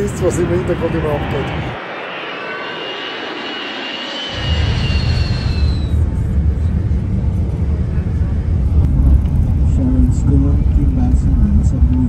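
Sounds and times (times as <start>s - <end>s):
deep jet rumble: 0.0s - 12.0s
jet engine whine: 0.0s - 12.0s.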